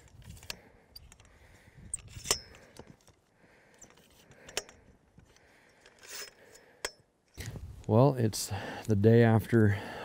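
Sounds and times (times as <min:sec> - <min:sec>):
tripod legs clicking: 0:00.0 - 0:07.5.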